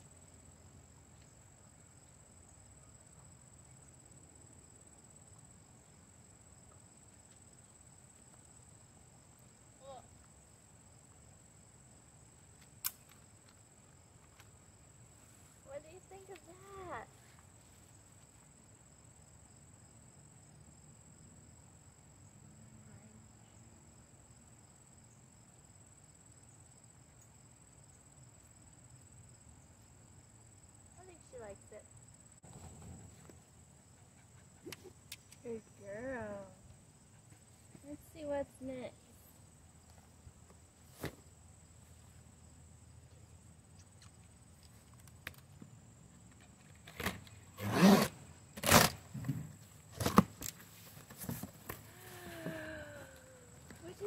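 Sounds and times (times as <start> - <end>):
packing tape ripping: 46.9 - 49.0.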